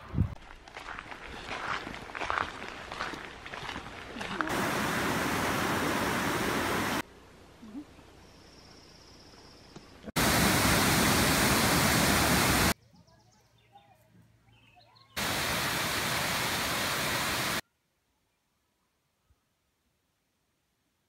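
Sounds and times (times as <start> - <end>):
water rushing from rapids: 4.5 - 7.0, 10.2 - 12.8, 15.2 - 17.6.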